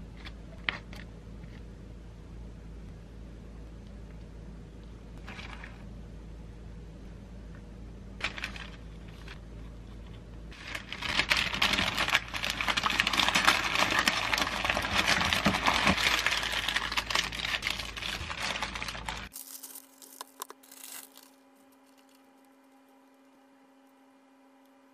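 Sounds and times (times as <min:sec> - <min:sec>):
baking paper crinkling: 0:08.2 - 0:09.5, 0:10.5 - 0:23.3.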